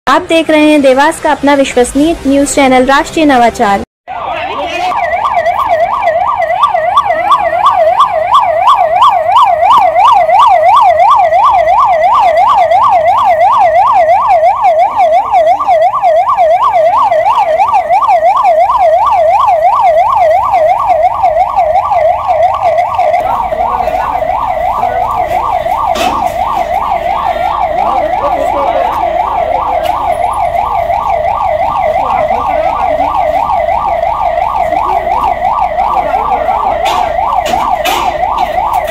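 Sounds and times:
ambulance siren yelping: 4.1s - 38.9s.

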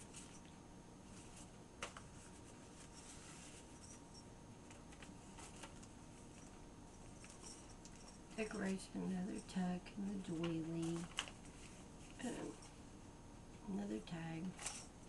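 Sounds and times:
paper rustling and tapping: 1.8s - 2.3s.

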